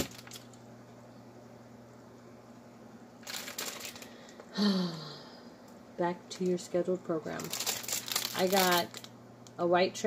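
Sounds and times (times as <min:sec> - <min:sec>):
plastic bag crinkling: 0:00.0 - 0:00.6, 0:03.2 - 0:04.5, 0:07.2 - 0:09.2
faint steady hum: 0:00.0 - 0:10.0
person humming: 0:04.5 - 0:05.4.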